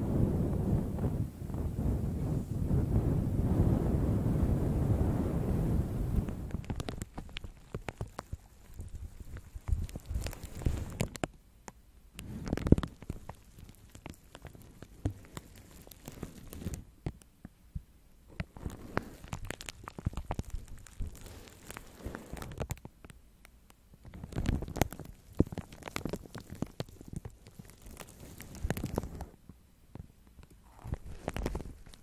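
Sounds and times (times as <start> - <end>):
soft rumble: 0.0 - 11.2
brushes rumbling on microphone: 0.0 - 11.3, 12.2 - 17.0, 18.3 - 22.9, 24.0 - 29.4, 30.6 - 32.0
plastic film crinkling: 6.2 - 11.3, 12.2 - 17.0, 18.4 - 23.1, 24.0 - 29.4, 30.4 - 32.0.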